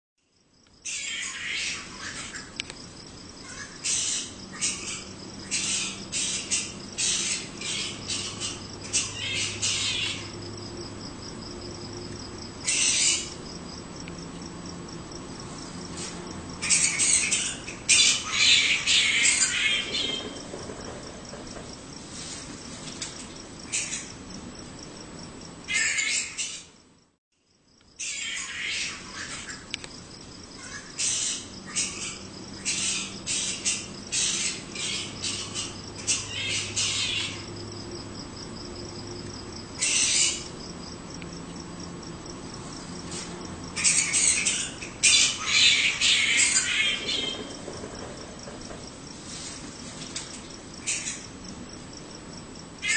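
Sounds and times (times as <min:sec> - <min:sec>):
high insect drone: 0:00.2 - 0:52.9
harsh animal squawks: 0:00.8 - 0:02.6, 0:03.4 - 0:10.4, 0:12.6 - 0:13.4, 0:16.6 - 0:20.4, 0:23.7 - 0:24.2, 0:25.7 - 0:26.7, 0:28.0 - 0:29.7, 0:30.6 - 0:37.5, 0:39.8 - 0:40.5, 0:43.7 - 0:47.6.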